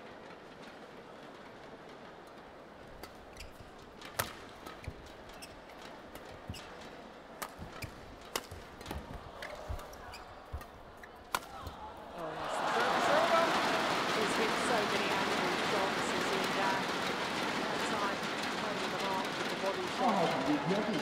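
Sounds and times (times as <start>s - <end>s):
murmur of crowd: 0.0s - 21.0s
rackets hitting shuttlecock: 3.0s - 12.0s.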